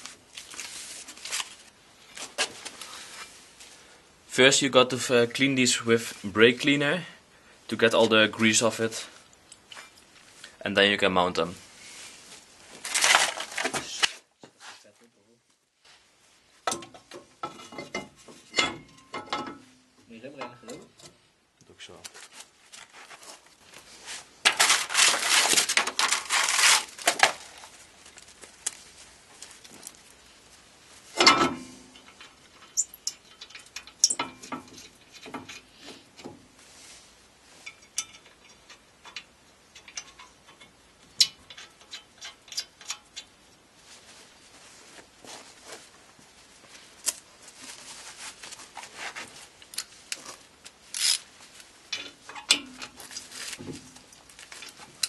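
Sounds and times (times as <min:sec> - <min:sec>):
steady hiss: 0:26.8 - 0:55.0
metal clinks and scrapes: 0:31.1 - 0:43.4.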